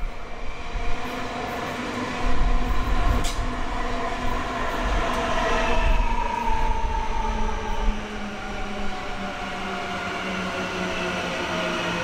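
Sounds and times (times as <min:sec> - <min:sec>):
train wheels on rails: 0:01.0 - 0:06.6.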